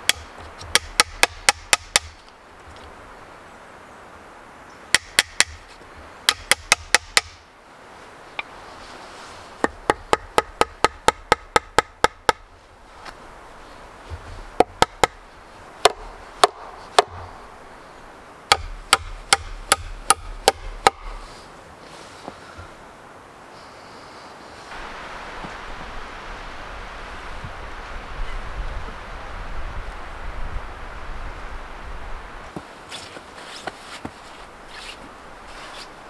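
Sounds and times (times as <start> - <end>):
hammer striking nails into wood: 5.0 - 5.6, 6.3 - 7.4, 15.8 - 17.2, 18.5 - 21.1.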